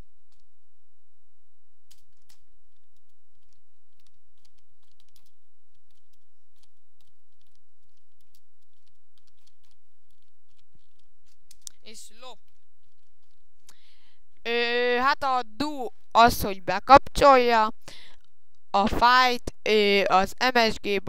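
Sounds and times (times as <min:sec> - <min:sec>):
computer keyboard keystroke clicks: 0:03.4 - 0:11.8.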